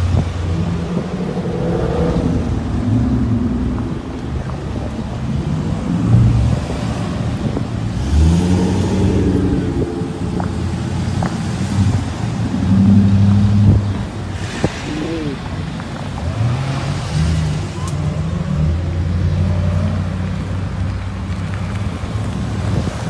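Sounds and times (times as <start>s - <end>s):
cars driving past: 0.0s - 23.0s
engine revving: 7.9s - 13.8s.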